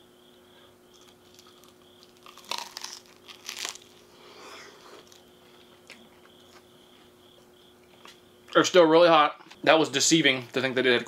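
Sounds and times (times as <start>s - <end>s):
chewing: 0.9s - 4.1s, 4.8s - 6.6s
crunchy bites into waffle: 0.9s - 4.1s.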